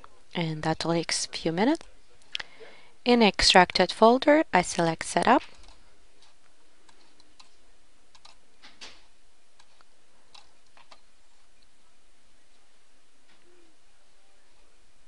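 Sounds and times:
steady low hiss: 0:00.0 - 0:15.0
faint irregular clicks: 0:05.4 - 0:09.0, 0:09.6 - 0:11.7.

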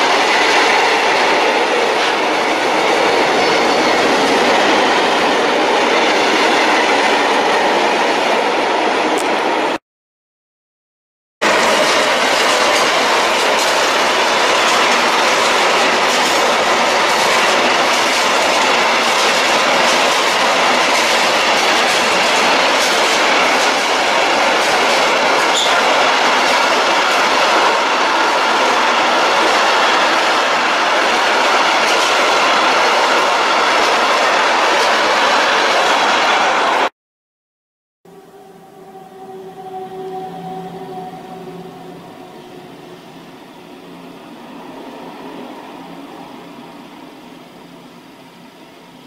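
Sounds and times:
train wheels rushing on rail: 0:00.0 - 0:09.8, 0:11.4 - 0:36.9, 0:38.2 - 0:49.0
clickety-clack over rail joints: 0:11.5 - 0:36.7.

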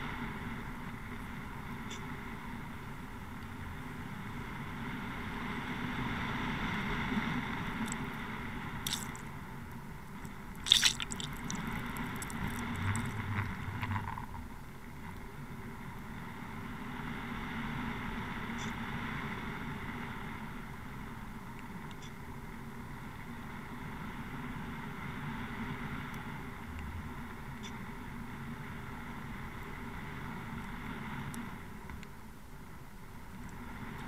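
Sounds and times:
boat engine droning underwater: 0:00.0 - 0:21.4
water rushing: 0:07.6 - 0:09.4, 0:10.2 - 0:14.4.

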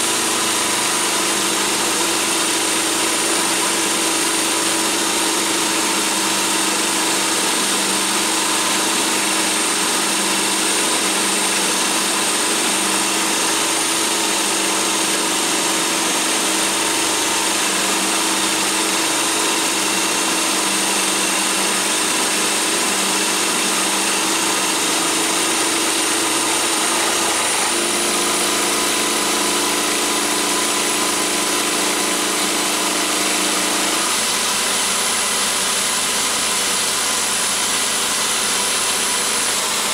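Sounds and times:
metal cutting noise: 0:00.0 - 0:39.9
power drill motor whine: 0:00.0 - 0:39.9.

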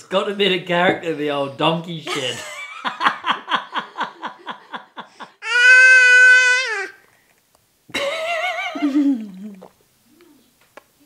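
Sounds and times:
toddler squealing: 0:05.4 - 0:07.0
toddler whining: 0:05.4 - 0:07.0.

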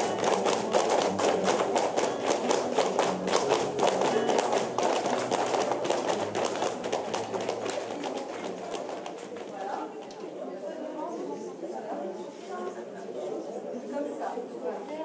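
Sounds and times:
dance shoes tapping floor: 0:00.0 - 0:09.8.

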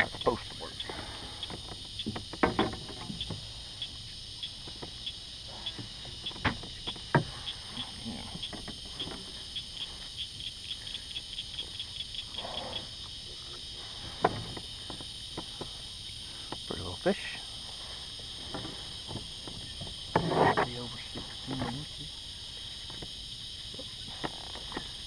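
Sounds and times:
insect chorus drone: 0:00.0 - 0:25.0
sharp high insect clicks: 0:00.0 - 0:25.0
knocks of gear in kayak: 0:01.5 - 0:03.4.

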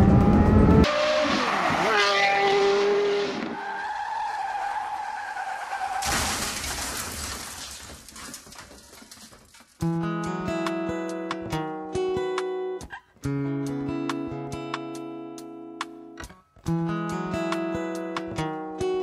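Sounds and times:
car tyres squealing: 0:00.9 - 0:06.5
car crash: 0:01.2 - 0:09.7
debris clinking: 0:06.0 - 0:09.9.

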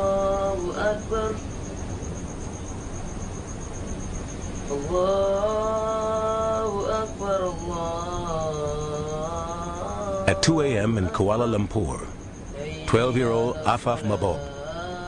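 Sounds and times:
low hum: 0:00.0 - 0:15.0
man chanting long notes: 0:12.7 - 0:14.9.

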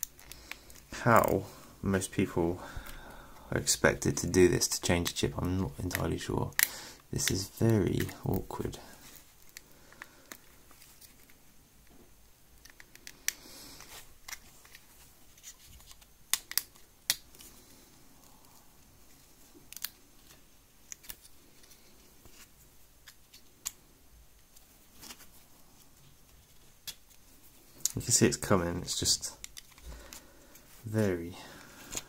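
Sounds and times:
small plastic clicks: 0:19.6 - 0:20.0.

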